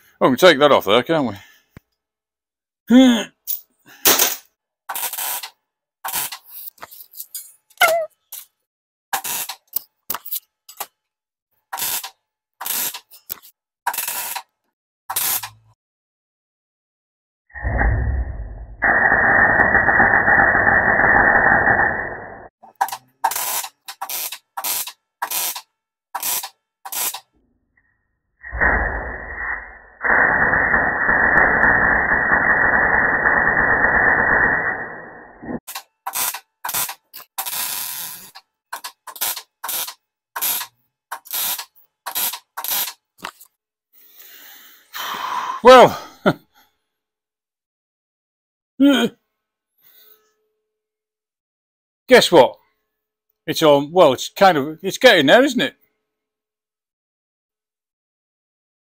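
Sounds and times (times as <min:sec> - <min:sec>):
welder arc crackling: 0:11.8 - 0:14.5, 0:15.1 - 0:15.6, 0:18.8 - 0:25.6, 0:26.2 - 0:27.3, 0:28.4 - 0:43.3.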